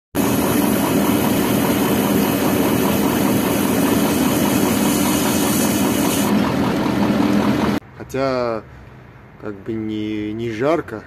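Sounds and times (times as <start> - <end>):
diesel engine running: 0.2 - 7.8.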